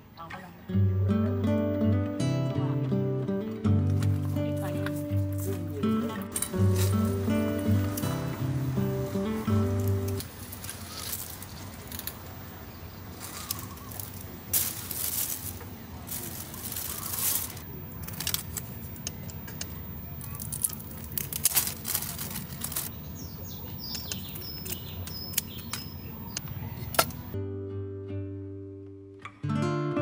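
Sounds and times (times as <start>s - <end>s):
plastic bag crinkling: 9.7s - 12.2s, 13.1s - 23.0s
scissors snipping shrimp shells: 23.8s - 27.2s.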